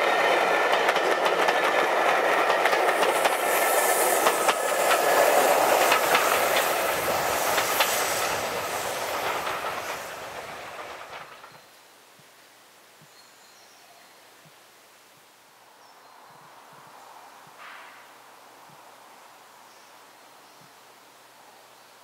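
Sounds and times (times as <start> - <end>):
train wheels clattering over rail joints: 0.0 - 11.7.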